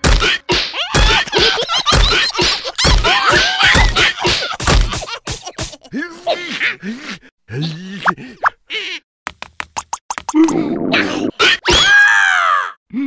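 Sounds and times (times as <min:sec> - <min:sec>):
cartoon voices squealing and chattering: 0:02.3 - 0:04.4, 0:10.3 - 0:12.4.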